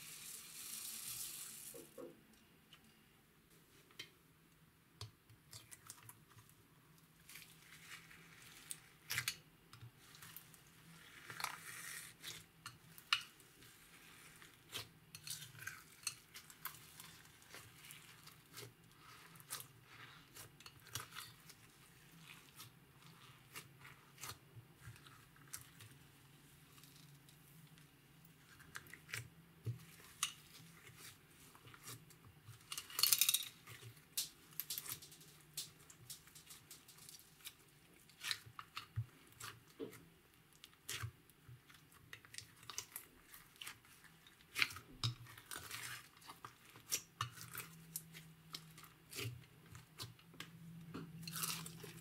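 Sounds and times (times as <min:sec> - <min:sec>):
slime squishing and crackling: 0:10.0 - 0:26.0, 0:28.4 - 0:50.5, 0:51.2 - 0:52.0.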